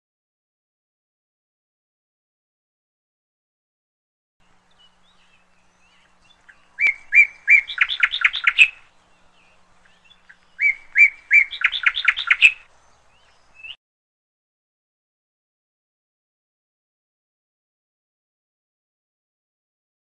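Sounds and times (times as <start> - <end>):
faint bird chirps: 4.4 - 13.8
songbird singing: 4.4 - 13.8.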